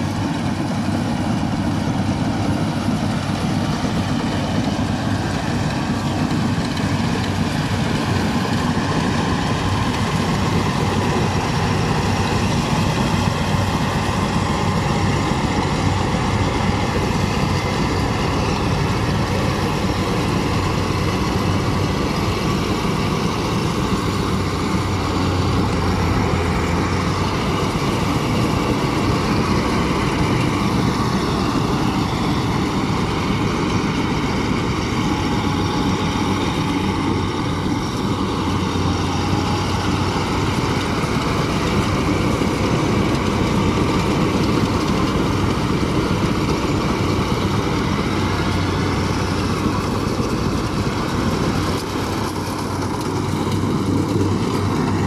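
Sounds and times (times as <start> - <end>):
combine harvester running: 0.0 - 55.0
low engine hum: 0.0 - 55.0.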